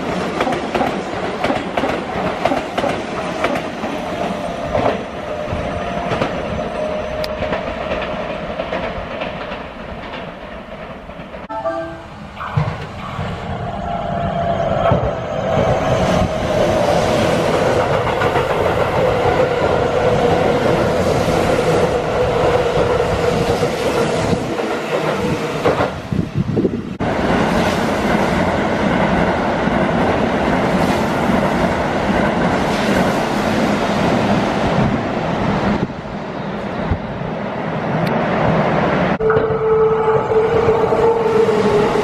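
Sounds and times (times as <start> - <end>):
electric train passing at speed: 0.0 - 42.0.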